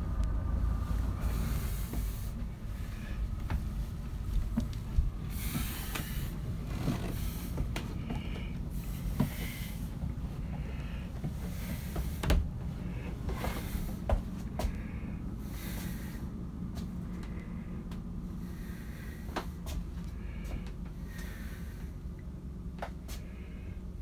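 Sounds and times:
low rumble: 0.0s - 24.0s
short rustles: 1.2s - 14.9s.

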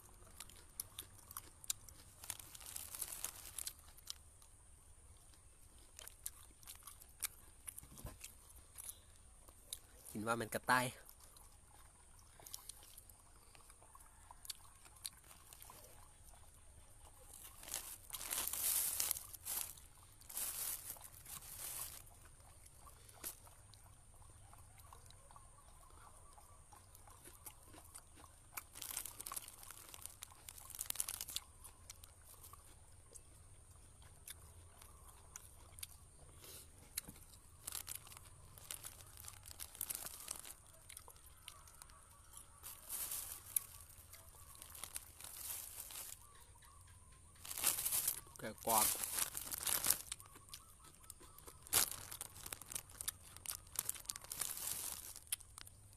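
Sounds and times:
crunchy chewing: 0.0s - 55.9s
plastic bags crinkling: 1.4s - 4.3s, 15.2s - 15.9s, 17.2s - 22.1s, 28.6s - 32.1s, 37.2s - 46.4s, 47.4s - 50.4s, 51.2s - 55.9s.

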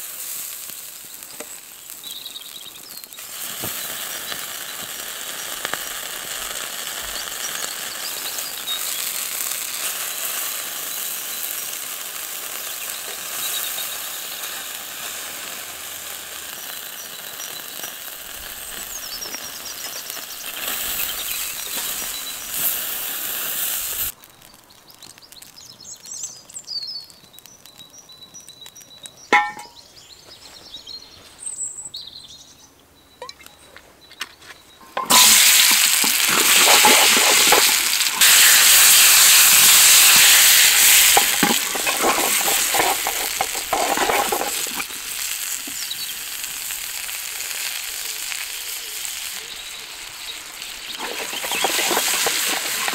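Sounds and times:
meat sizzling on grill: 0.0s - 26.3s, 35.0s - 52.9s
birds chirping: 0.9s - 15.5s, 16.1s - 38.4s, 40.9s - 52.9s.

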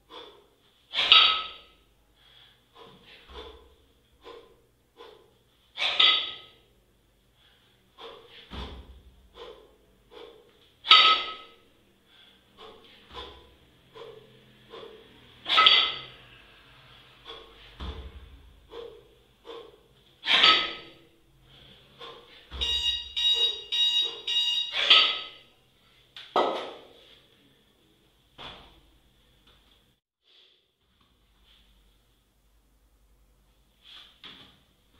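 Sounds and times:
heavy sharp exhales: 0.0s - 1.2s, 2.2s - 6.4s, 7.3s - 10.7s, 11.4s - 22.6s
low thuds: 17.7s - 18.8s
interval timer beeping: 22.5s - 24.9s.

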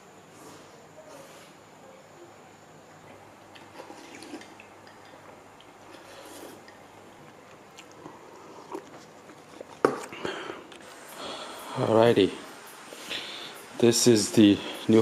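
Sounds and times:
chewing: 3.5s - 10.9s.

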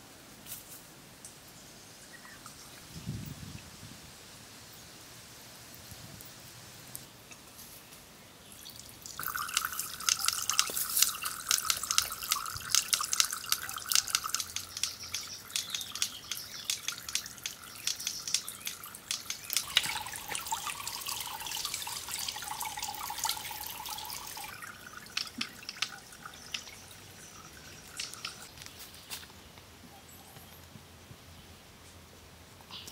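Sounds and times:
water trickling into pond: 8.4s - 29.2s.

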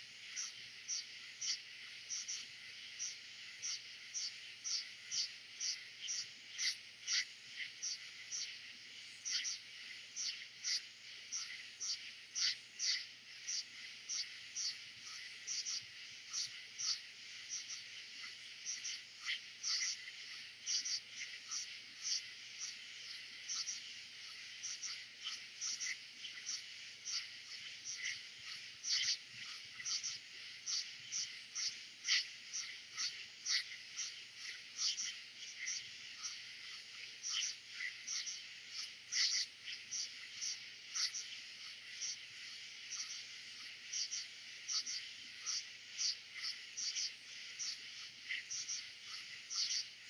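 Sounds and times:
crickets: 0.0s - 50.0s
frogs: 0.0s - 50.0s
katydids: 0.0s - 50.0s.

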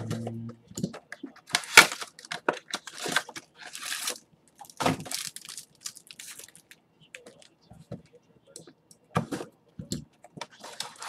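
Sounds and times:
rustling and crinkling: 0.0s - 8.2s, 10.4s - 11.0s.

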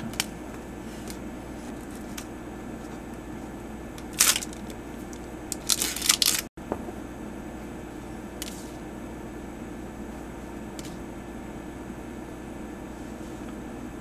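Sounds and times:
foil wrapper crinkling: 4.0s - 4.8s, 5.5s - 6.5s.

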